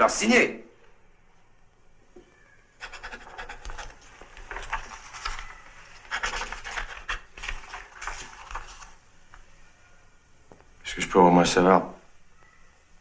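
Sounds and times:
pen scratching across paper: 2.8s - 8.2s.

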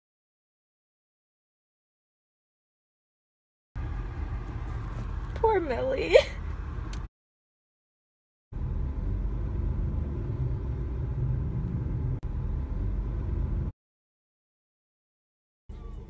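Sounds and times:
low background rumble: 3.8s - 7.1s, 8.6s - 13.7s.

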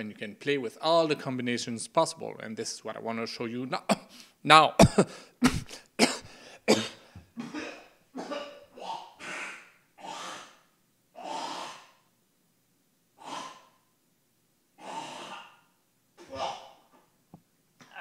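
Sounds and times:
man breathing heavily and gasping: 5.0s - 7.4s.

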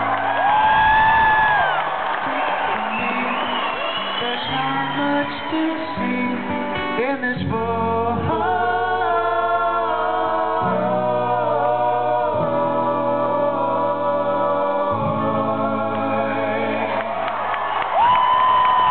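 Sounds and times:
acoustic guitar: 0.0s - 18.9s
men singing in harmony: 2.4s - 6.3s, 7.4s - 17.3s.

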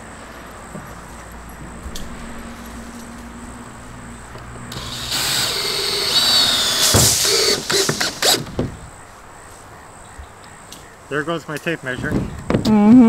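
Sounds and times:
cordless drill whining: 4.7s - 8.6s.

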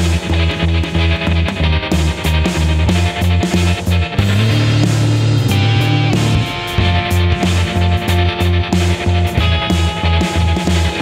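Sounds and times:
rock music: 0.0s - 11.0s.

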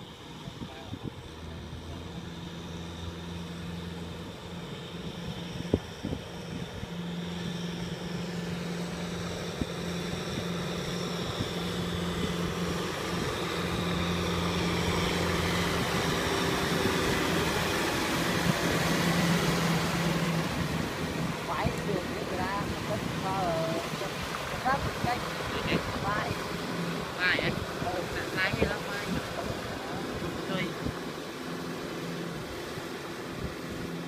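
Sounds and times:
tractor diesel engine running: 10.6s - 34.0s.

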